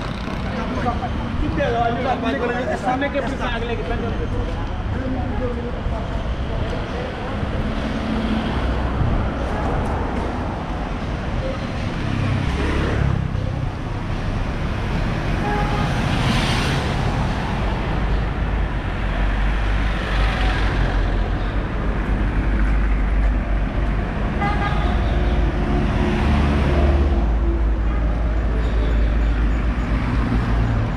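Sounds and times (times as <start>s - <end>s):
cars and scooters passing: 0.0s - 30.9s.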